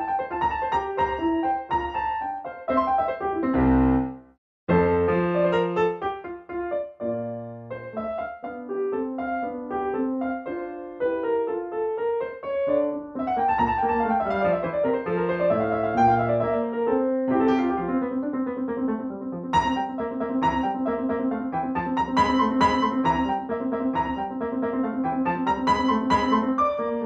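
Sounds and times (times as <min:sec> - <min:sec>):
solo piano melody: 0:00.0 - 0:27.0.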